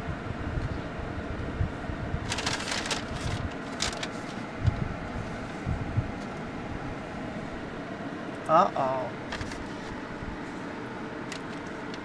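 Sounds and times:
engine idling in vehicle cabin: 0.1 - 12.0.

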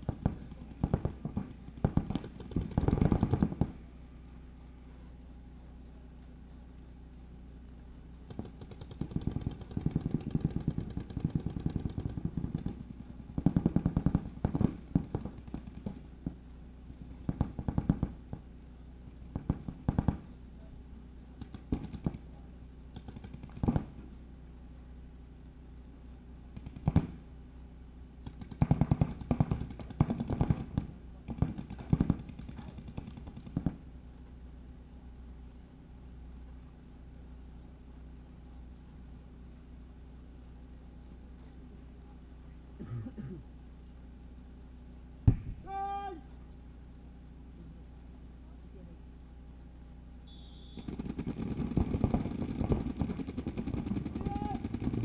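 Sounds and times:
paintball markers firing: 0.0 - 3.8, 8.3 - 16.0, 21.4 - 22.3, 22.9 - 24.0, 26.5 - 27.2, 28.2 - 33.8, 50.6 - 55.0.

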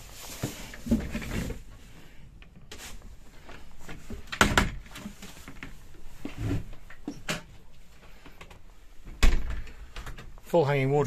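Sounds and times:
wooden door knocks and clunks: 9.1 - 9.8.

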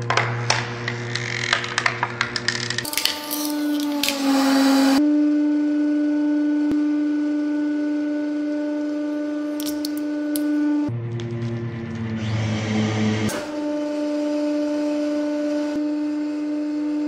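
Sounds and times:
plastic cracking: 0.0 - 4.2
hydraulic press whine: 0.0 - 17.0
plastic and chocolate crunching: 1.5 - 4.2, 9.6 - 10.5.

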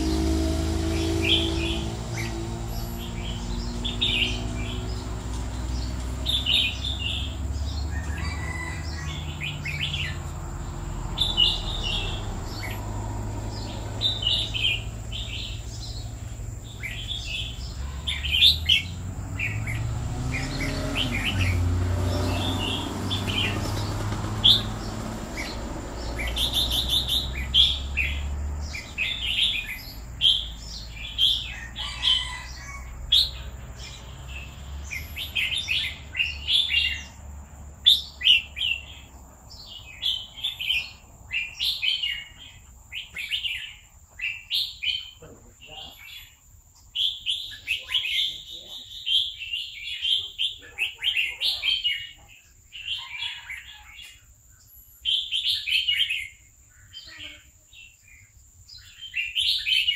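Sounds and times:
bird chirping song: 0.0 - 59.9.

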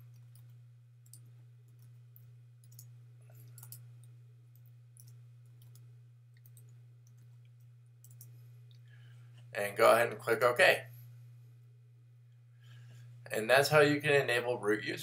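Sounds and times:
faint keyboard keystrokes: 0.0 - 8.4
low electrical hum: 0.0 - 15.0.

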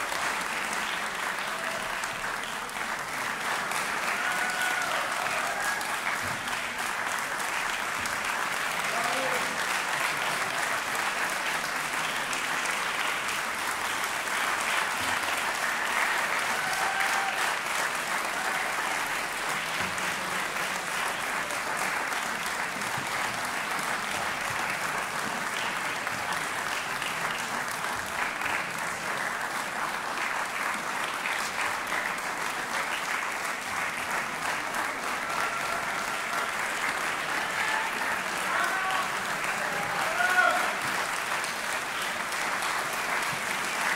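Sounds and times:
audience applauding: 0.0 - 43.9.

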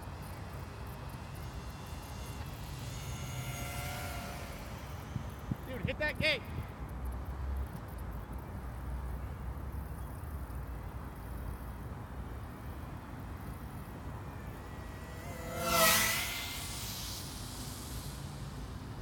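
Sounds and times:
drone propellers whining: 0.1 - 6.0, 12.4 - 19.0.

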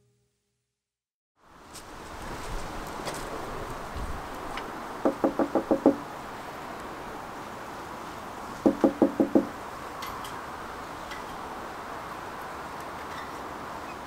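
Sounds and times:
knocking on a door: 5.0 - 6.0, 8.6 - 9.5.

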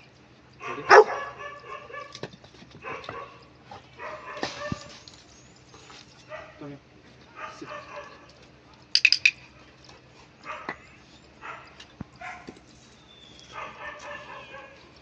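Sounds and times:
dog barking: 0.6 - 2.2, 2.8 - 5.0, 6.3 - 6.7, 7.3 - 8.4, 10.4 - 10.8, 11.4 - 12.5, 13.4 - 14.9.

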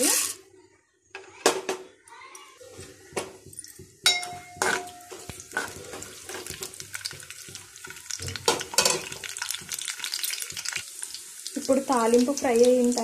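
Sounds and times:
metal spoon scraping a pan: 0.0 - 0.5, 4.0 - 10.8
light sizzle: 2.8 - 13.0.

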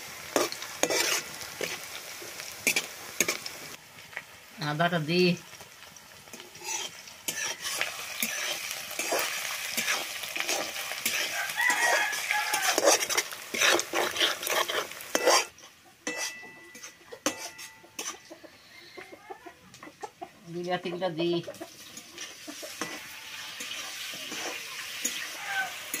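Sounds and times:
onions sizzling in hot oil: 0.0 - 19.1, 20.6 - 26.0
spatula scraping metal pan: 0.3 - 1.9, 6.3 - 18.4, 21.5 - 26.0.

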